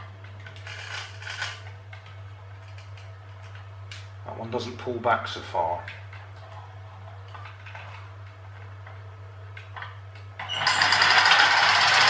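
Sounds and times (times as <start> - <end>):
toy truck spring motors rattling: 10.4 - 12.0.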